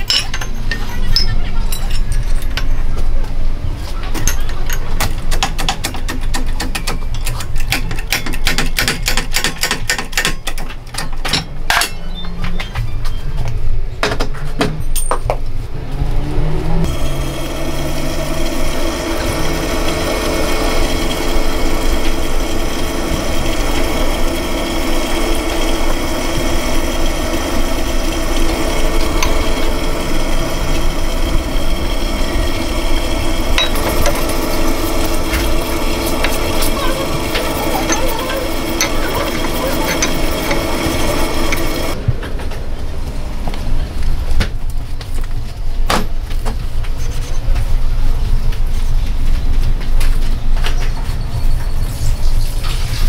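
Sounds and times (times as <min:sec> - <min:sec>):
workshop machine hum with whine: 0:00.0 - 0:53.0
sharp metallic clicks and clinks: 0:33.5 - 0:42.0.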